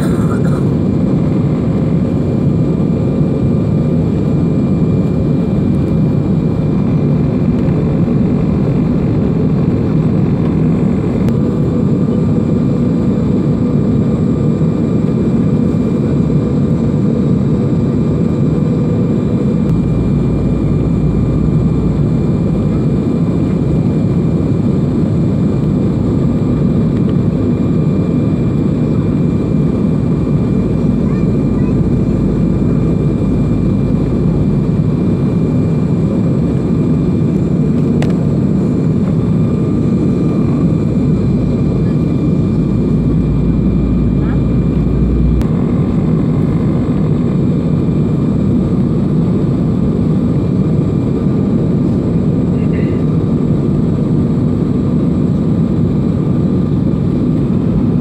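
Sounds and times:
deep rumble: 0.0s - 13.1s, 17.8s - 50.3s
airliner cabin engine rush: 0.0s - 58.0s
faint whining tones: 39.0s - 47.3s.

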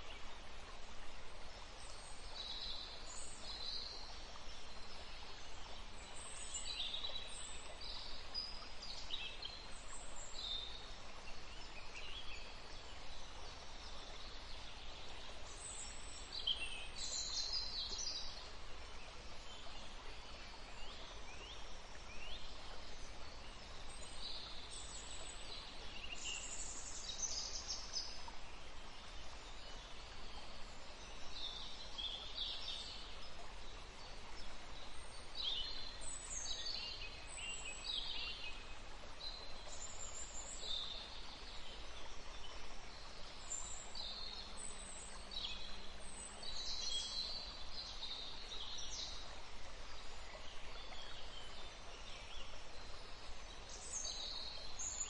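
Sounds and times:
steady rainforest hiss: 0.0s - 55.0s.

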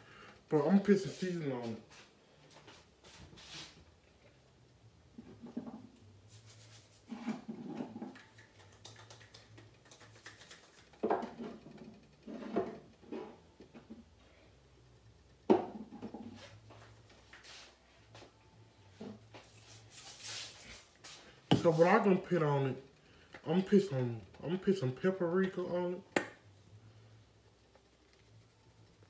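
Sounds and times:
knocks and clinks in a kitchen: 7.1s - 14.1s, 15.5s - 16.6s.

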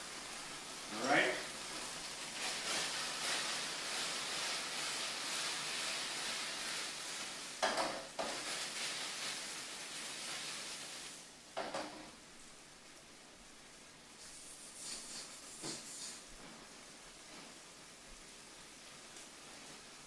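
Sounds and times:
chicken sizzling in a skillet: 0.0s - 12.2s.

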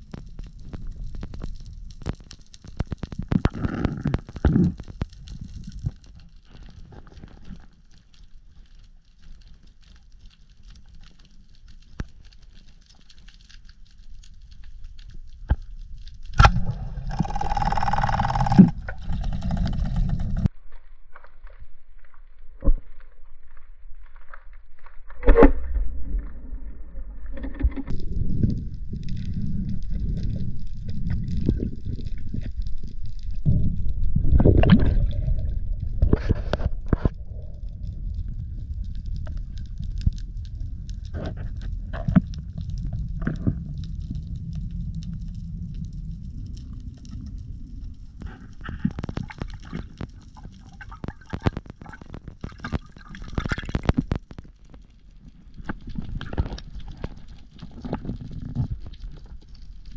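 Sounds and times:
faint crackling: 0.0s - 20.5s
rushing water underwater: 0.0s - 20.5s, 21.1s - 59.9s
fish knocking against rocks underwater: 16.4s - 20.5s.

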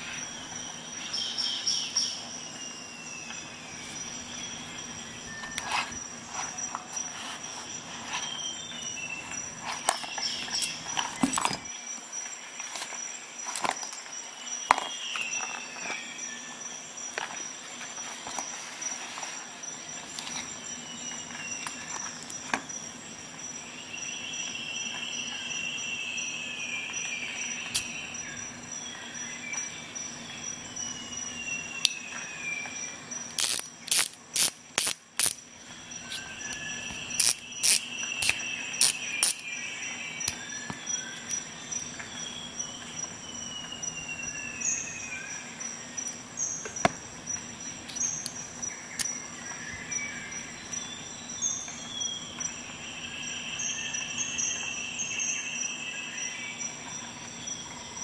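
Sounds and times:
faint steady background noise: 0.0s - 58.0s
metallic ratchet clicks: 33.4s - 35.4s, 37.2s - 39.4s.

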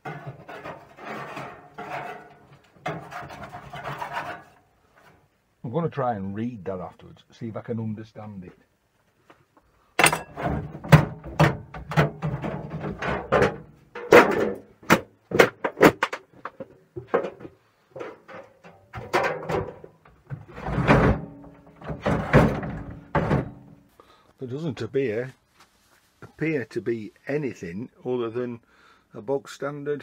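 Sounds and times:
sheet-metal casing rattling and banging: 0.0s - 4.6s, 10.0s - 23.8s.

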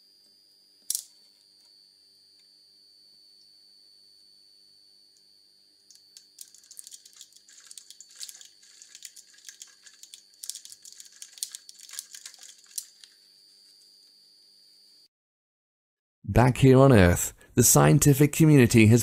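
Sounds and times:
aluminium foil crinkling and crackling: 6.0s - 13.8s.

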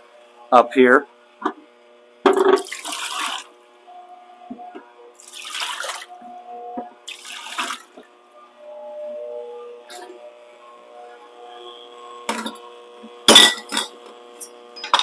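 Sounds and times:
tap water running: 2.3s - 3.5s, 5.2s - 6.2s, 7.0s - 8.1s.

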